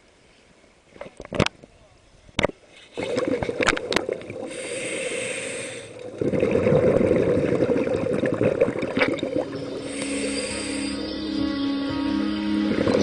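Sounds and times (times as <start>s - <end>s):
exhaled bubbles crackling: 2.4s - 11.1s
regulator hissing inhale: 4.4s - 6.0s, 9.8s - 11.4s.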